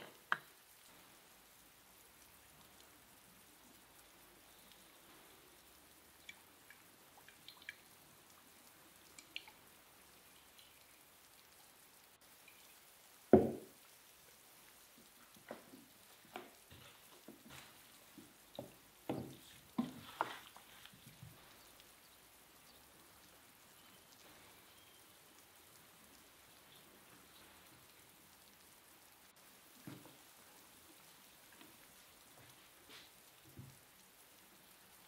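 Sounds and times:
rain falling on paving: 0.0s - 35.0s
soft knock: 13.4s - 13.7s.

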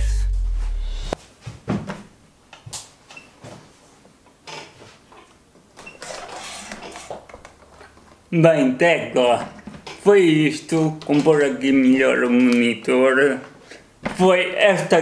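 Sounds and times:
monitor rubbing scrape: 5.9s - 7.3s.

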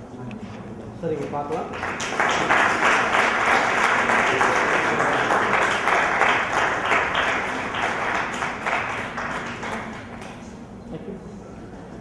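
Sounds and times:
audience applauding: 1.7s - 10.4s.

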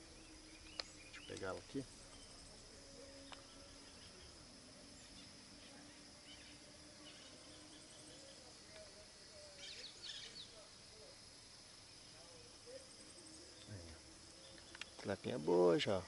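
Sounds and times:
bird chirps: 0.0s - 2.6s, 3.2s - 10.6s, 12.7s - 15.4s
high-pitched insect drone: 0.0s - 16.0s.

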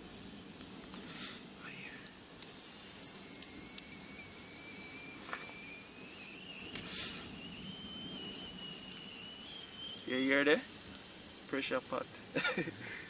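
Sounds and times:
fire popping: 0.0s - 13.0s
short hiss: 0.9s - 11.7s
pressure pot whistling: 1.7s - 11.8s.

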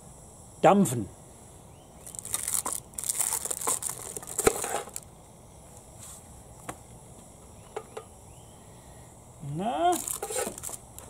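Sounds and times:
baking paper crinkling: 2.0s - 5.0s, 9.9s - 11.0s.

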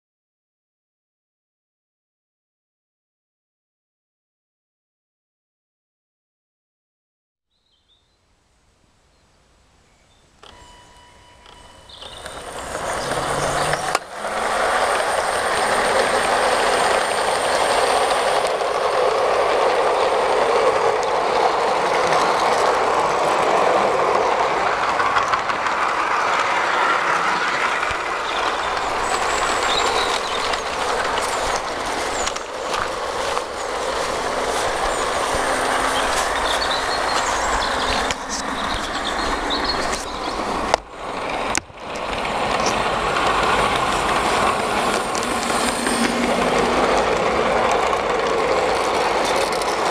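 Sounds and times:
model train running on track: 10.4s - 49.9s.

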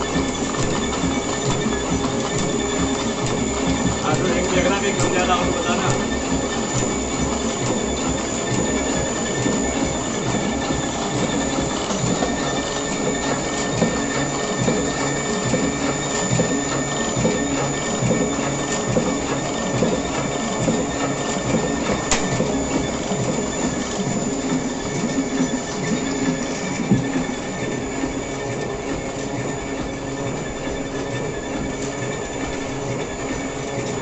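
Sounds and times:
printing machine clattering: 0.0s - 34.0s
steady high whine: 0.0s - 34.0s
sharp click: 22.1s - 22.3s.

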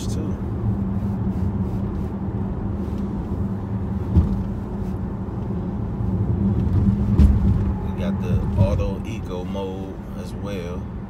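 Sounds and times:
car engine humming: 0.0s - 11.0s
road and tyre noise: 0.0s - 11.0s
light thump: 4.1s - 4.6s, 6.8s - 7.8s.

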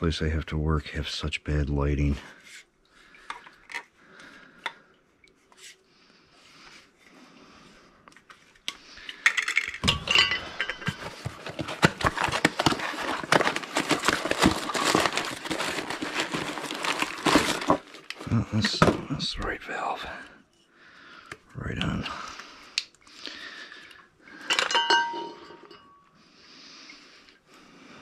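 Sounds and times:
metal tools clinking and rattling: 9.1s - 16.4s, 24.4s - 26.0s.

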